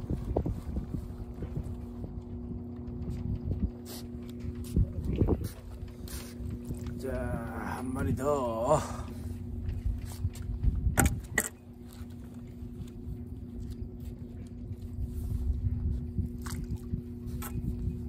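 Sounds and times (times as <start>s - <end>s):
faint steady hum: 0.0s - 18.0s
steady low rumble: 0.0s - 18.0s
fishing tackle clicks and knocks: 9.6s - 12.1s.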